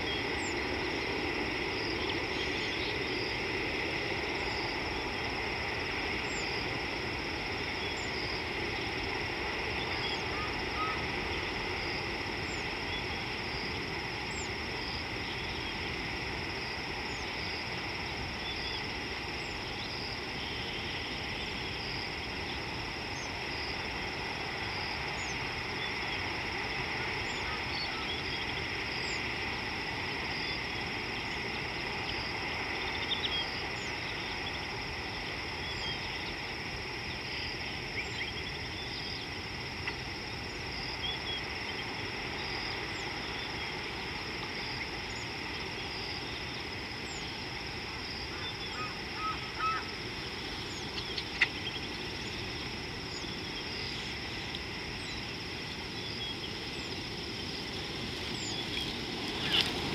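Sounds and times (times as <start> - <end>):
insects chirring: 0.0 - 59.9.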